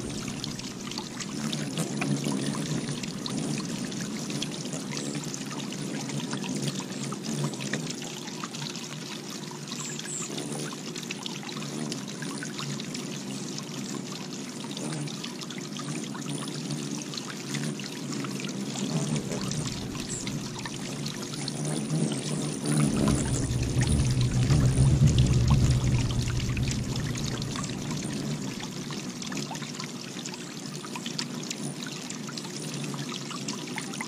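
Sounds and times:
fountain water trickling: 0.0s - 34.0s
small splashes of bathing birds: 17.5s - 29.6s.

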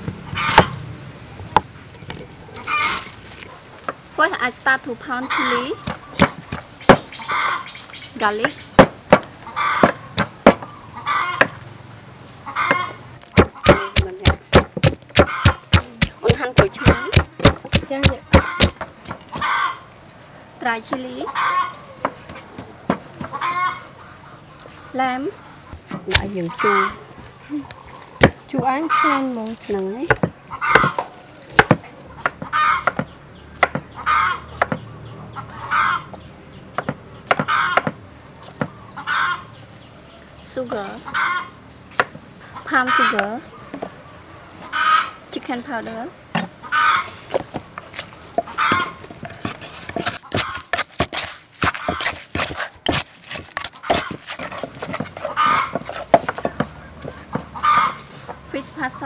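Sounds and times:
chickens calling: 0.3s - 0.8s, 2.5s - 3.8s, 5.0s - 20.1s, 21.0s - 58.7s
pestle pounding in mortar: 5.8s - 7.1s, 8.4s - 10.6s, 13.3s - 19.2s, 30.1s - 31.0s, 31.6s - 33.9s, 48.4s - 57.6s
knife chopping on wooden board: 12.7s - 19.2s, 28.2s - 28.7s, 31.6s - 33.9s, 36.8s - 38.0s, 48.7s - 57.5s
chicken clucking: 53.7s - 58.4s.

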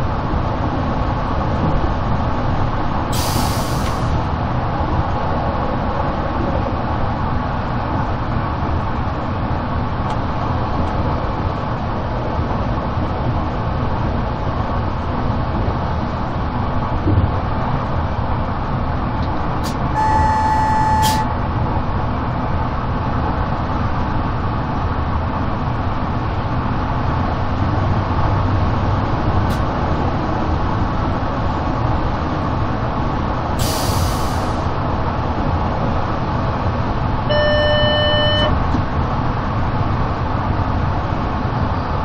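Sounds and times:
train wheels rumbling on track: 0.0s - 37.4s
short hiss: 3.1s - 4.1s, 33.6s - 34.6s
electronic beep: 37.3s - 38.6s.

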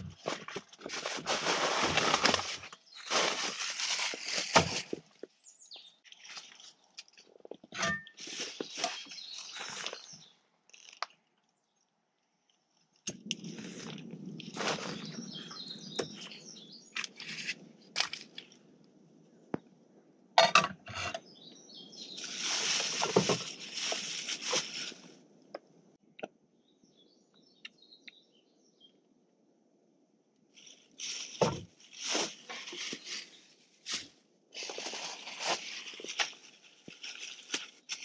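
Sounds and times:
plastic bag crinkling: 0.0s - 5.3s, 22.1s - 25.1s, 30.6s - 38.0s.

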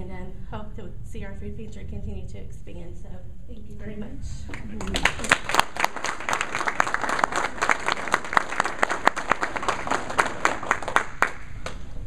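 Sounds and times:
audience applauding: 4.8s - 11.9s.

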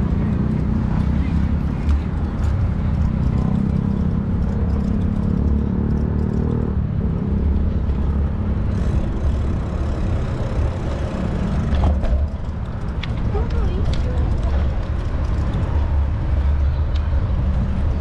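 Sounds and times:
road traffic: 0.0s - 18.0s
steady engine hum: 0.0s - 18.0s
wind noise on microphone: 8.7s - 18.0s.

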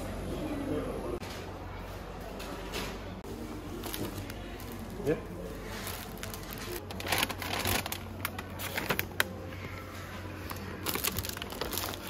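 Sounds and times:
plastic bag crinkling: 3.8s - 9.3s, 10.5s - 12.0s.

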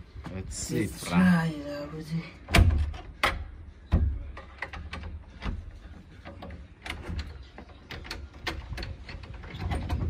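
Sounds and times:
metal door handle rattling: 2.5s - 10.0s.

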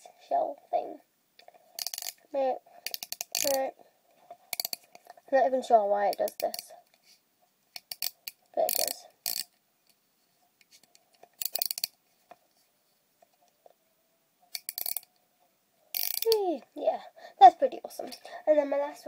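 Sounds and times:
plastic watch clicks and rattles: 1.8s - 2.2s, 2.8s - 3.6s, 4.5s - 5.2s, 6.1s - 6.7s, 7.8s - 10.0s, 10.6s - 12.0s, 14.5s - 15.1s, 15.9s - 16.4s.

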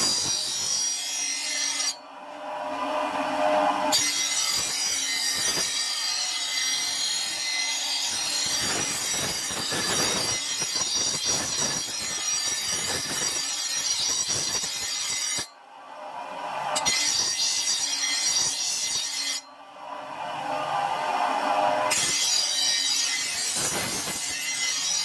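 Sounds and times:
grinder wheel grinding steel blade: 0.0s - 2.0s, 2.6s - 15.5s, 16.7s - 19.5s, 21.6s - 25.0s.

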